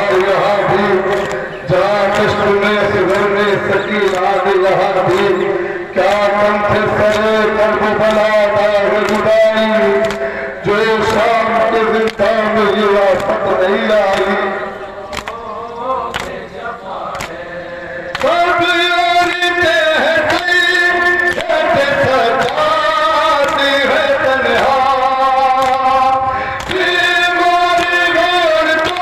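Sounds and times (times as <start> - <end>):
men chanting in unison: 0.0 - 29.0.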